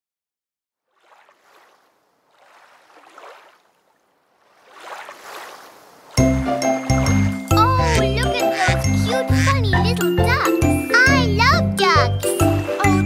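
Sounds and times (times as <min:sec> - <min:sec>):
children's song music with heavy bass: 0:06.2 - 0:13.0.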